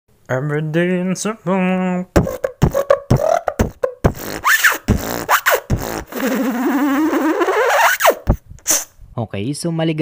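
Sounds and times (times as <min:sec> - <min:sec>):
beatbox-style percussive hits: 0:02.1 - 0:08.9
wobbling sound rising in pitch: 0:02.2 - 0:08.4.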